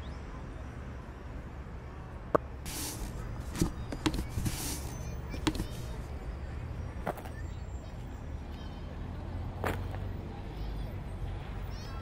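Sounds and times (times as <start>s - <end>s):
shoe scuffs on brick paving: 2.6s - 6.1s
cardboard box rustling and scraping: 2.7s - 6.1s.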